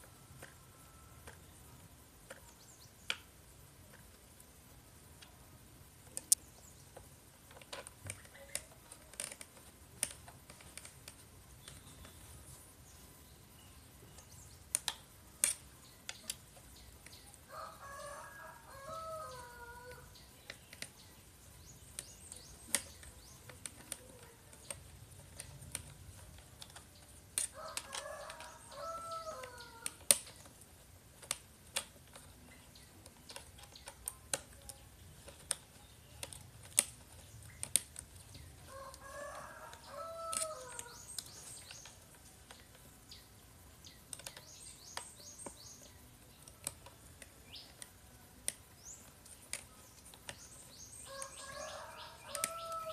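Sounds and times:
hand tools clicking on plastic: 0:07.0 - 0:12.2, 0:18.7 - 0:42.9, 0:43.8 - 0:52.9
rooster crowing: 0:17.5 - 0:20.1, 0:27.5 - 0:30.0, 0:38.7 - 0:41.0, 0:51.1 - 0:52.9.

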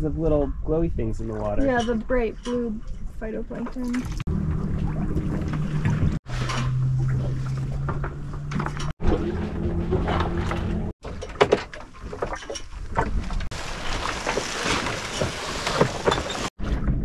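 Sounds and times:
water splashing along a hull: 0:01.2 - 0:17.0
low hum: 0:02.7 - 0:11.0.

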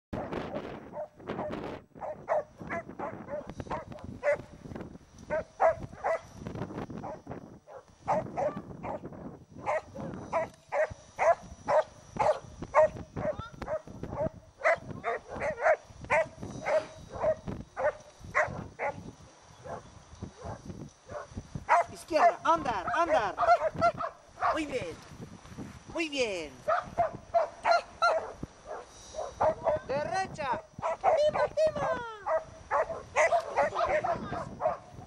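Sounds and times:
dog barking: 0:00.9 - 0:04.5, 0:05.3 - 0:06.3, 0:07.0 - 0:09.0, 0:09.6 - 0:19.0, 0:19.6 - 0:19.8, 0:20.4 - 0:24.6, 0:26.7 - 0:29.9, 0:30.8 - 0:35.0.

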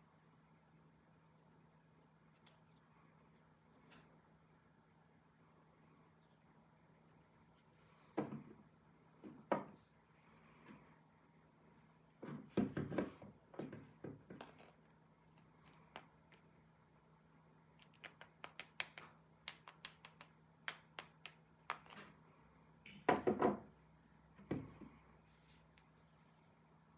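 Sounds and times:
faint steady hum: 0:00.0 - 0:26.9
plastic toys knocking on a table: 0:23.1 - 0:23.6.

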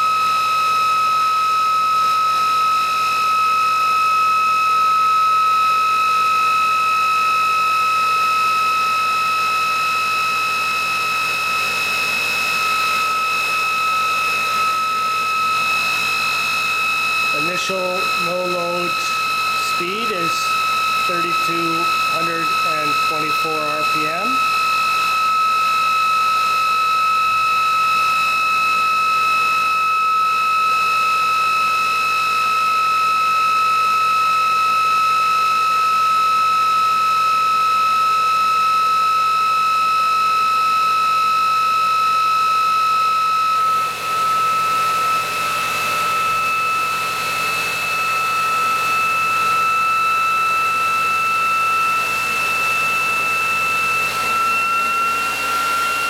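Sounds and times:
generator high-pitched whine: 0:00.0 - 0:56.0.

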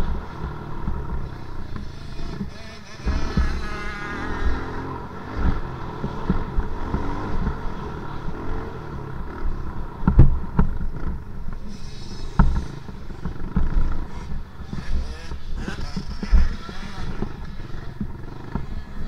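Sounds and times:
dirt bike engines revving: 0:00.0 - 0:19.0
sharp thumps: 0:00.8 - 0:07.7, 0:10.0 - 0:18.8.

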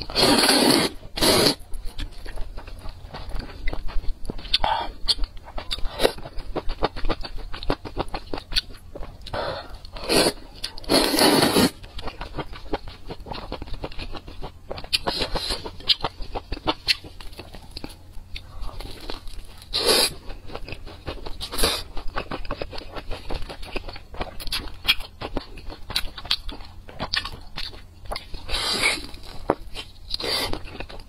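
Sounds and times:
wet chewing: 0:00.0 - 0:31.0
noodle slurp: 0:00.1 - 0:01.6, 0:10.0 - 0:11.7.

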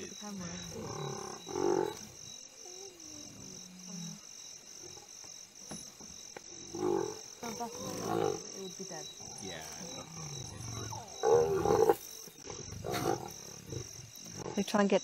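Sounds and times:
crickets chirping: 0:00.0 - 0:15.0
lions growling: 0:00.4 - 0:05.1, 0:06.7 - 0:14.7.

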